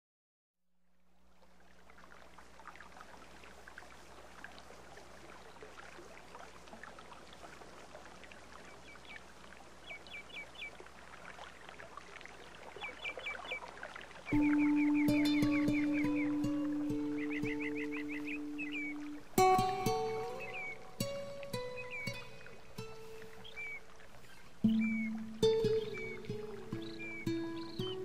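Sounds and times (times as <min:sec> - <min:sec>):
stream water running: 0:00.8 - 0:28.0
birds chirping: 0:08.6 - 0:10.8, 0:12.8 - 0:28.0
music: 0:14.3 - 0:23.4, 0:24.7 - 0:28.0.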